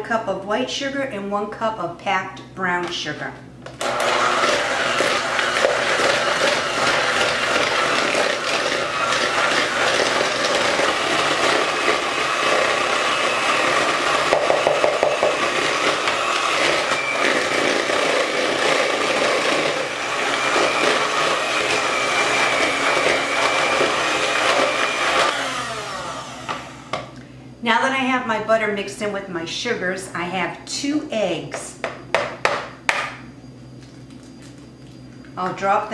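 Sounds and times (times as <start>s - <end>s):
electric hand mixer running: 3.8s - 27.2s.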